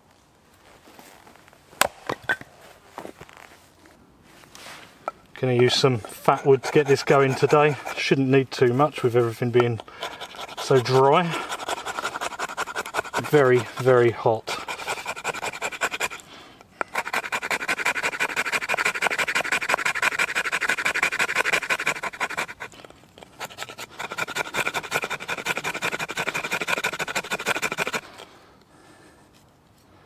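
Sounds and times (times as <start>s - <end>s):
knife scraping wood: 5.1s - 28.4s.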